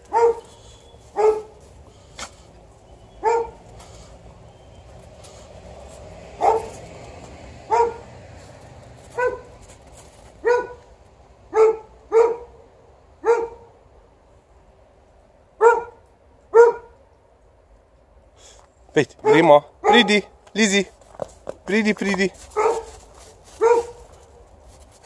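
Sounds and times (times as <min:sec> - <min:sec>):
dog barking: 0:00.0 - 0:01.6, 0:03.2 - 0:03.6, 0:06.4 - 0:06.8, 0:07.7 - 0:08.1, 0:09.1 - 0:09.6, 0:10.4 - 0:10.9, 0:11.5 - 0:12.6, 0:13.2 - 0:13.7, 0:15.6 - 0:17.0, 0:19.2 - 0:20.3, 0:22.5 - 0:24.2.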